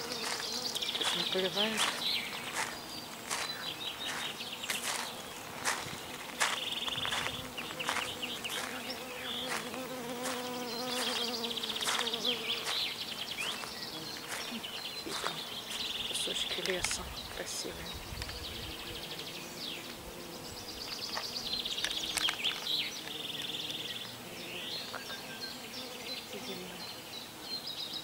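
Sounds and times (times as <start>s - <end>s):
insects buzzing trills: 0.0s - 28.0s
footsteps clicking: 0.2s - 8.8s, 9.5s - 17.0s.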